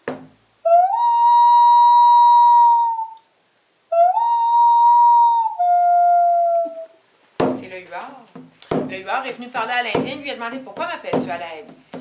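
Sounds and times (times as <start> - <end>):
woman imitating a loon call: 0.6 - 3.2, 3.9 - 7.0.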